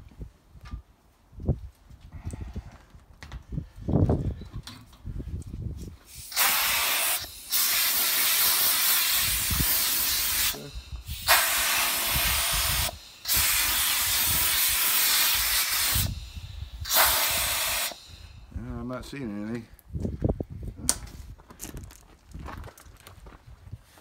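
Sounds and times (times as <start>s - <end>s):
compressed air blow gun hissing: 6.0s - 18.6s.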